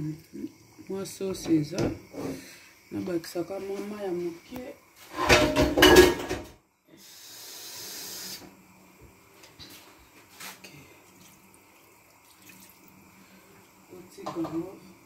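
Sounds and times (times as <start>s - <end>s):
water running: 0.0s - 6.4s, 8.2s - 15.0s
water trickling into a pot: 10.7s - 15.0s
light knocks on a pot: 14.2s - 14.6s.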